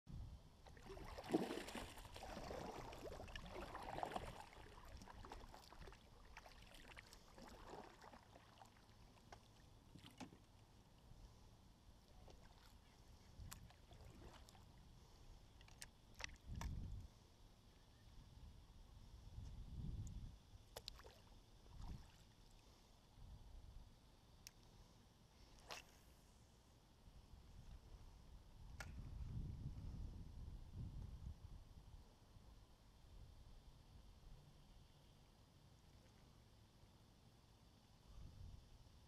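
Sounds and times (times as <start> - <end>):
paddle splashing in water: 0.7 - 10.6, 12.2 - 14.7.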